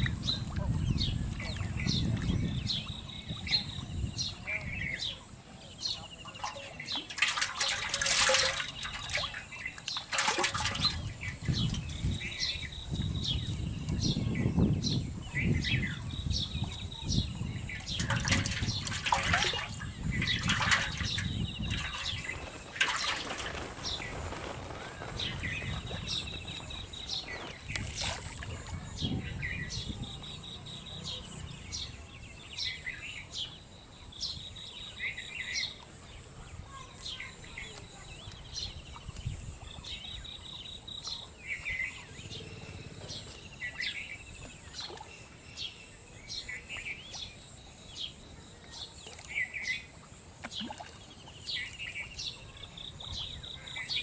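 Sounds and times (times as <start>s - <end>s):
small birds chirping: 0.0s - 54.0s
loud rustling or knocking: 6.5s - 11.9s.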